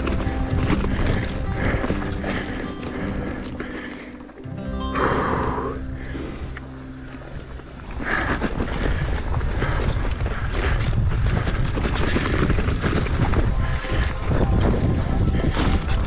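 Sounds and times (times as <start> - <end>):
mountain bike clattering on trail: 0.0 - 4.3, 7.2 - 16.0
wind on microphone: 7.9 - 16.0.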